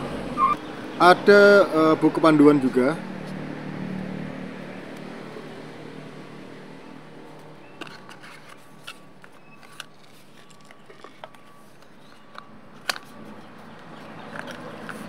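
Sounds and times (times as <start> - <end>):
plastic parts clicking and scraping: 7.8 - 15.0.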